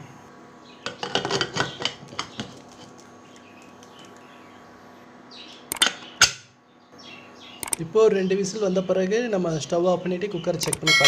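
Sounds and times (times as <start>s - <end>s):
sharp metallic clicks: 7.6s - 7.8s, 10.6s - 11.0s.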